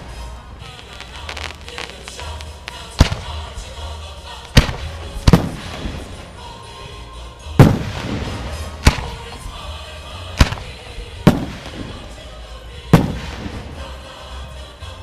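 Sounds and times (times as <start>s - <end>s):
firework shells bursting: 0.6s - 3.5s, 4.5s - 6.1s, 7.6s - 9.3s, 11.3s - 12.1s.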